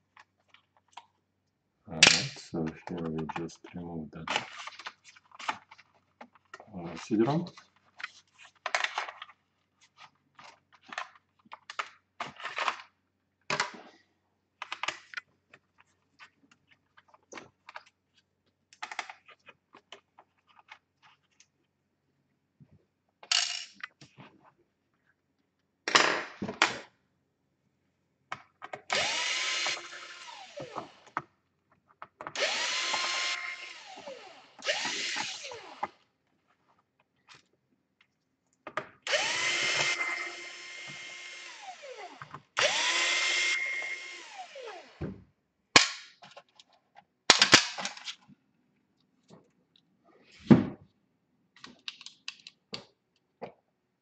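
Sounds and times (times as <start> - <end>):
electric screwdriver whine: 28.9 - 31.1, 32.4 - 35.9, 39.1 - 45.0.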